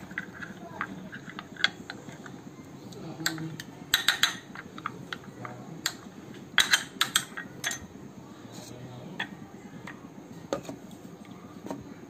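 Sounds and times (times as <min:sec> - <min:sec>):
metal spoon clinking glass bowl: 0:03.2 - 0:04.6.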